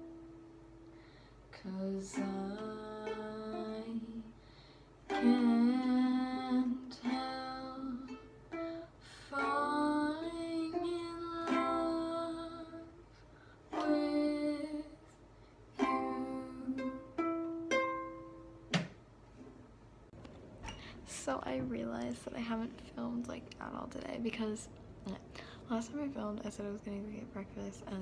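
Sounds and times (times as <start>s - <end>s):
young female voice singing: 1.5s - 4.4s, 5.1s - 13.0s, 13.7s - 15.1s, 15.8s - 17.2s
ukulele strumming and plucking: 1.7s - 4.3s, 5.0s - 12.9s, 13.7s - 14.9s, 15.8s - 18.9s.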